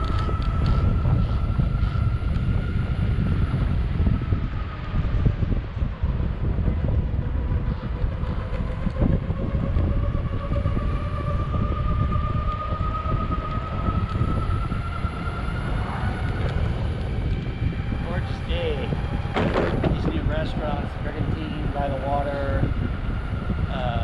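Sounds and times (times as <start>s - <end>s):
skateboard wheels rumbling on concrete: 15.3s - 20.9s.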